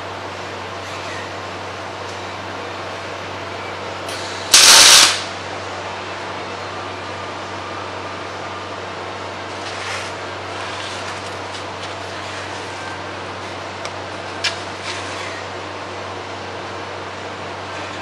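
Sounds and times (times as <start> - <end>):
fan-like hum: 0.0 - 18.0
arc welding burst: 4.5 - 5.4.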